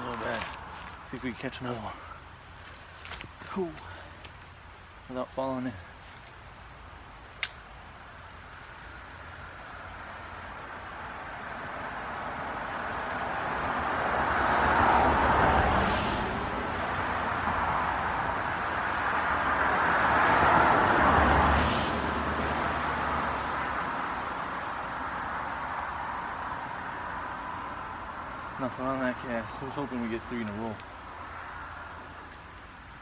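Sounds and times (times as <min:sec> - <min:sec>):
vehicles passing by: 0:00.0 - 0:33.0.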